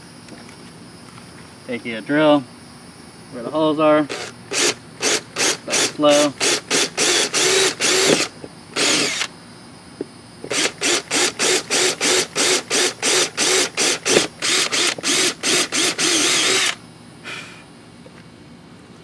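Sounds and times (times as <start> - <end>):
cordless drill whirring: 4.1 - 9.3, 10.4 - 16.8.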